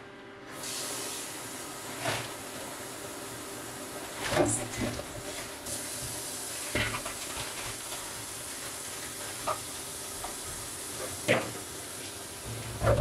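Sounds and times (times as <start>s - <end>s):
items knocking in sink: 6.7s - 7.8s, 11.1s - 11.6s, 12.5s - 13.0s.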